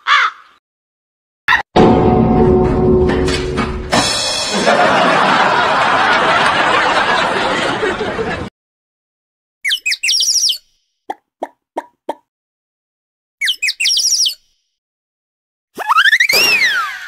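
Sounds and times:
loud noisy music: 1.8s - 5.2s
quick bird-like chirps: 9.6s - 12.2s, 13.4s - 14.5s.

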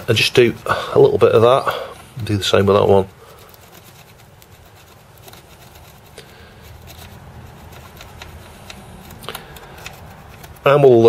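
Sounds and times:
plug scraping in jack: 6.8s - 10.7s.

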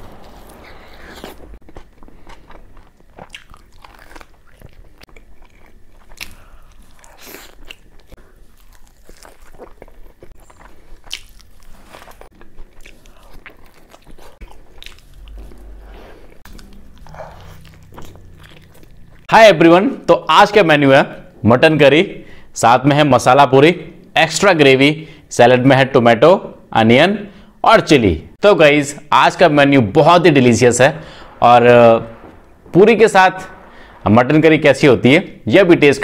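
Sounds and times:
man chewing and crunching food: 0.0s - 19.3s.

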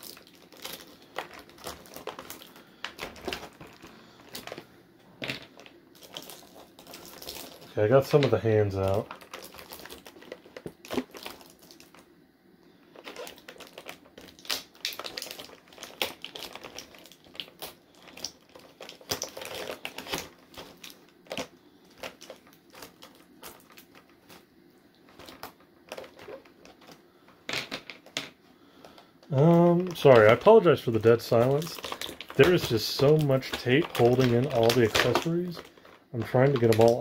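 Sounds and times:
packaging clicks and rustles: 0.0s - 12.1s, 12.8s - 37.0s.

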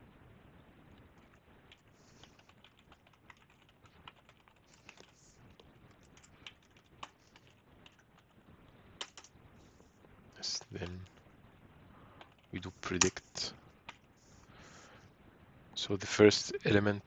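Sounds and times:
typing on a computer keyboard: 1.3s - 8.4s, 9.0s - 9.3s, 12.2s - 13.2s.

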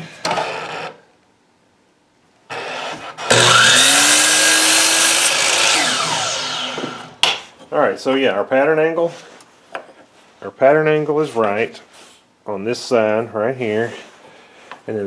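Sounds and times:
electric saw cutting wood: 2.5s - 7.2s.

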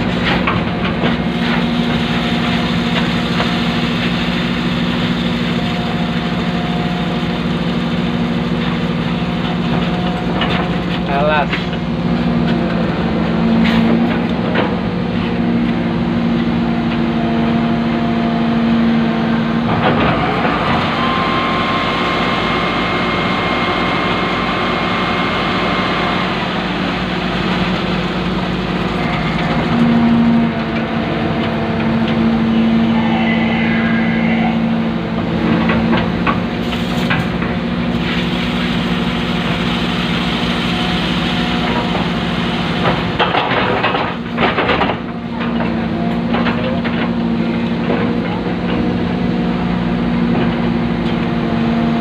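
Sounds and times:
excavator diesel engine: 0.0s - 52.0s
steady high whine: 31.0s - 35.7s.

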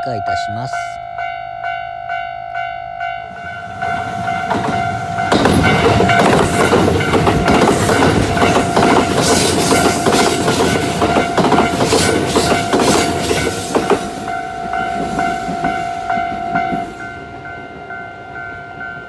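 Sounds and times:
level crossing warning bell: 0.0s - 19.0s
train wheels clacking over rail joints: 3.6s - 16.9s.

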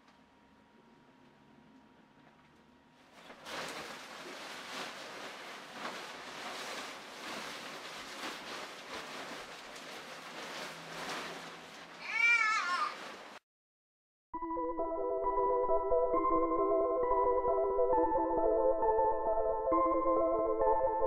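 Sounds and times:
fabric rustling and crinkling: 3.1s - 13.4s.

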